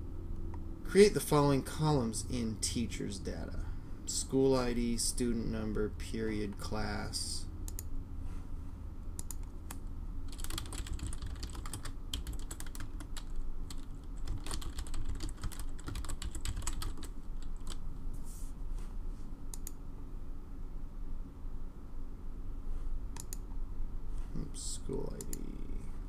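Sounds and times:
steady low hum: 0:00.0 - 0:26.0
computer keyboard keys clicking: 0:09.2 - 0:17.8.

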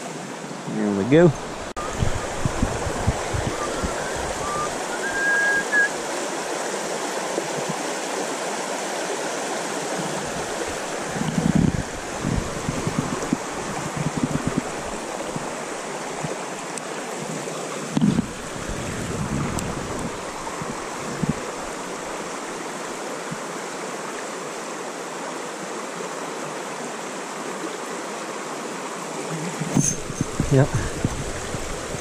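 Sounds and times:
stream rushing over rocks: 0:00.0 - 0:32.0
low rumbles on microphone: 0:29.7 - 0:32.0.

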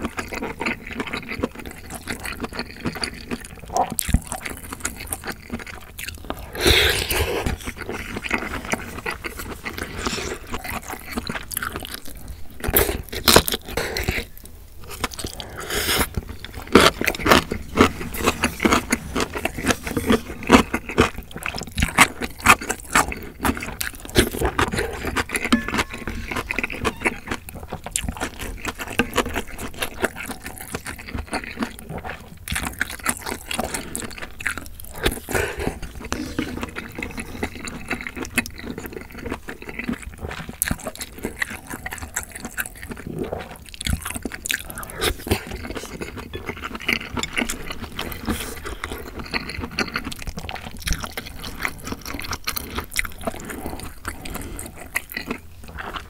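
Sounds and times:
wet chewing: 0:00.0 - 0:56.0.

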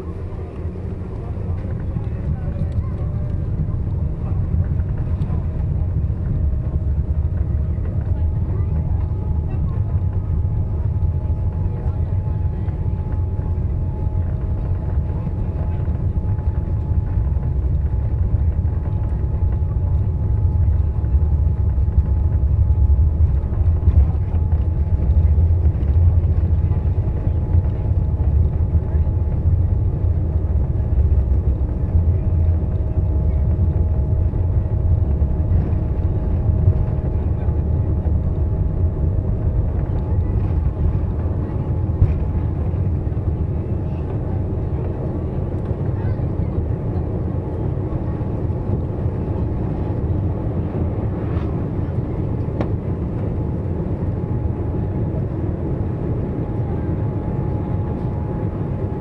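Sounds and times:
runway rumble: 0:00.0 - 0:59.0.

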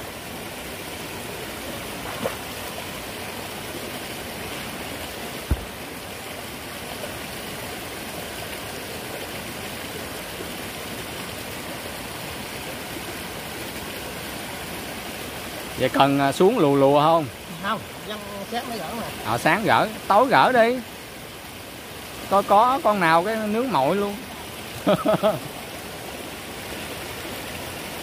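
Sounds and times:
stream rushing over rocks: 0:00.0 - 0:28.0
short thump: 0:05.4 - 0:05.8.

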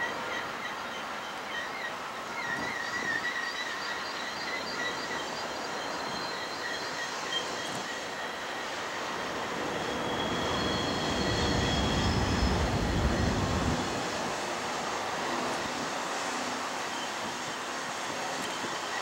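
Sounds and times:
train rolling noise: 0:00.0 - 0:19.0
train wheels squealing: 0:00.0 - 0:19.0
low rumble: 0:11.0 - 0:14.2.

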